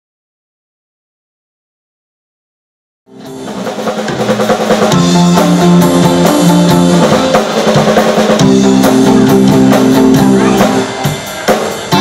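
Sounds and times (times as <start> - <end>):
bass guitar: 3.1 - 12.0
drum kit: 3.1 - 12.0
twangy electric guitars: 3.1 - 12.0.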